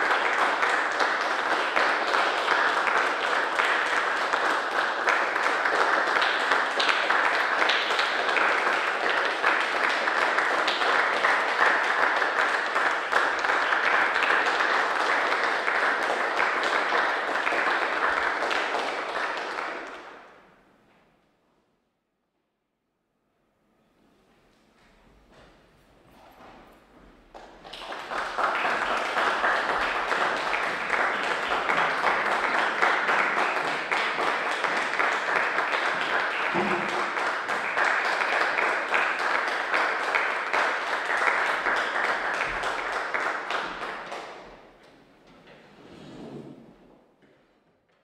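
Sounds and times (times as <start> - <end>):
small audience applauding: 0.0 - 20.5, 27.2 - 45.0.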